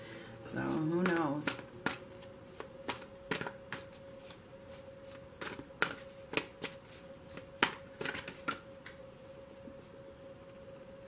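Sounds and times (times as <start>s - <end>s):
cards being shuffled: 1.0s - 8.6s.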